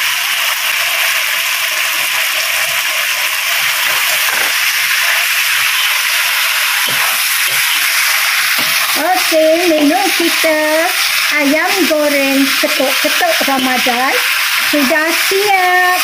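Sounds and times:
food sizzling in a hot wok: 0.0 - 16.0.

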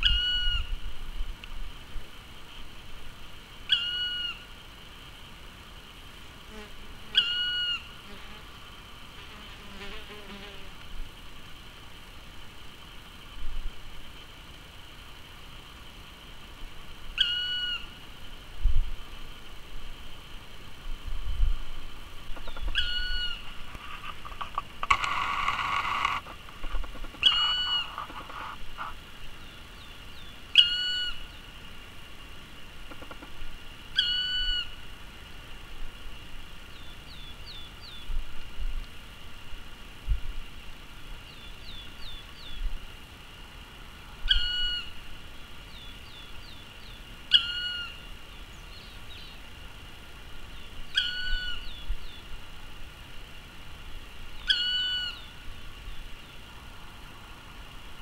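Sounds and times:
woodpecker calling: 0.0 - 0.7, 3.6 - 4.5, 7.1 - 8.0, 17.1 - 18.0, 22.3 - 23.6, 24.3 - 31.5, 32.8 - 34.8, 44.3 - 45.0, 45.7 - 49.4, 50.5 - 52.2, 54.4 - 55.4
rustle: 0.0 - 58.0
small bird chirps: 3.7 - 4.4, 17.2 - 18.0, 22.4 - 23.5, 27.1 - 28.0, 29.4 - 31.4, 33.9 - 34.8, 44.3 - 45.0, 45.7 - 49.4, 50.5 - 52.3, 54.4 - 56.4.

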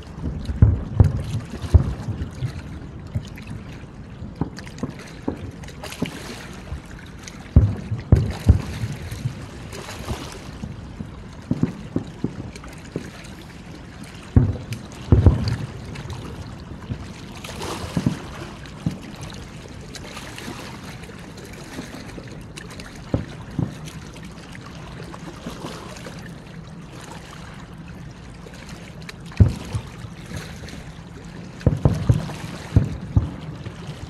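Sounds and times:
distant fireworks booming: 7.6 - 9.5, 14.3 - 17.1, 31.6 - 34.0.

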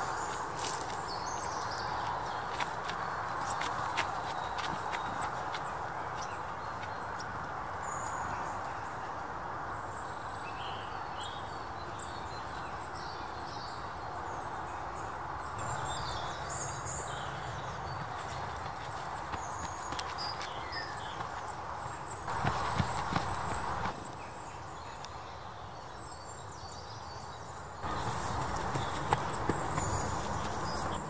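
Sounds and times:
birds chirping: 0.0 - 31.0
rushing background hiss: 15.6 - 26.5.

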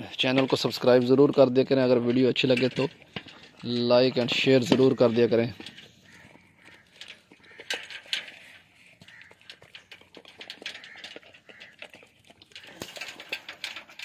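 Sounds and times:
teeth clicking on metal pan: 2.0 - 14.0
dog lapping and chewing: 5.8 - 14.0.

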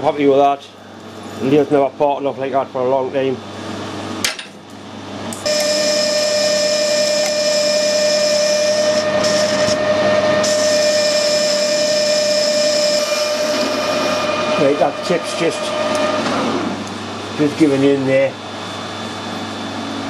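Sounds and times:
metal lathe whine: 5.4 - 17.6.

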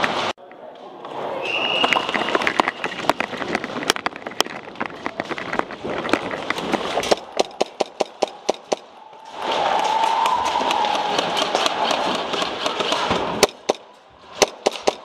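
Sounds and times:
quick footsteps: 1.8 - 15.0
airsoft guns firing: 7.0 - 8.9, 10.1 - 15.0.

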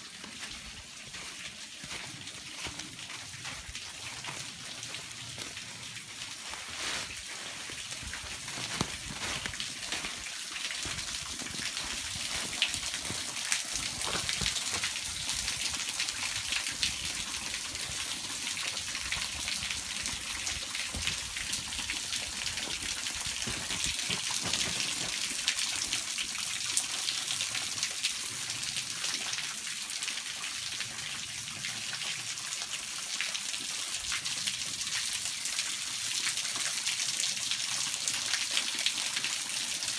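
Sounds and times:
waterfall splashing and dripping: 0.0 - 39.9.

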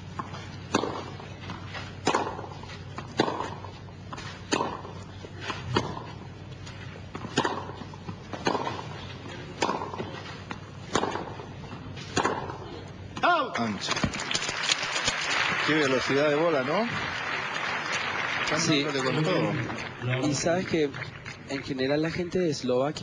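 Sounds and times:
tennis ball bouncing: 0.1 - 13.3
racket striking tennis ball: 0.2 - 14.5.

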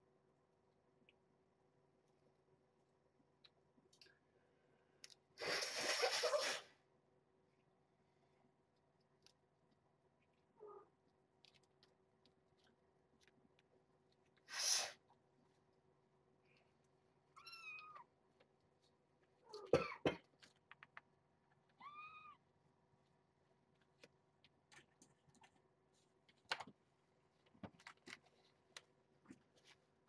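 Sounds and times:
kitten meowing: 17.4 - 18.1, 21.8 - 22.4.

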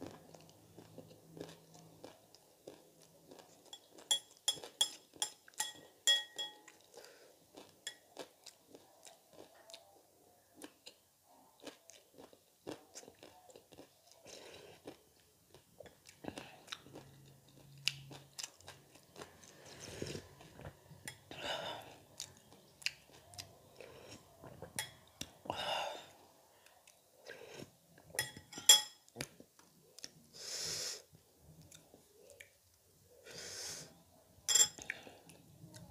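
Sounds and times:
chewing and crunching snacks: 0.0 - 5.5, 6.7 - 25.5
metal spoon clinking glass bowl: 3.7 - 6.8, 24.8 - 25.1, 28.2 - 29.0, 34.5 - 34.8.

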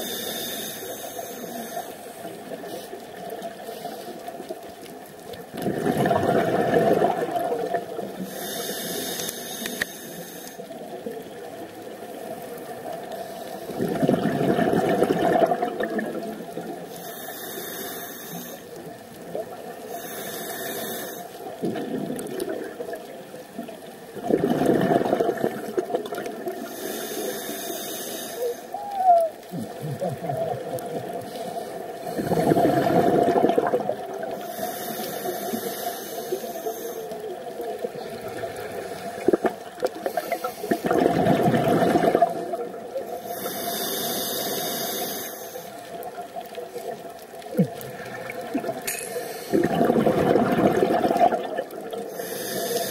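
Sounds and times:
hissing inhalation: 0.0 - 2.9, 8.2 - 10.7, 16.9 - 18.7, 19.9 - 21.4, 26.6 - 30.2, 34.4 - 37.2, 39.9 - 41.0, 42.1 - 45.8, 48.9 - 49.8, 52.1 - 52.9
exhaled bubbles gurgling: 4.2 - 9.1, 10.7 - 17.6, 20.8 - 52.9.

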